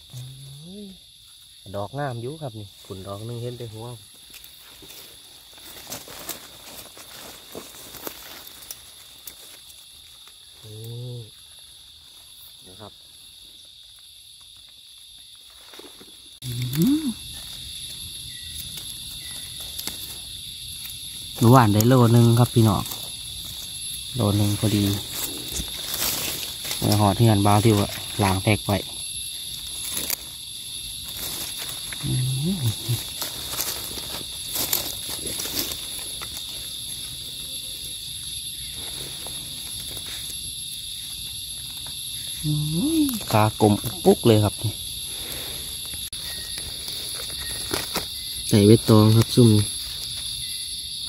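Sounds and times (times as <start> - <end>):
insects droning: 0.0 - 51.0
dry leaves crackling: 2.7 - 28.7, 29.3 - 43.8, 45.2 - 50.6.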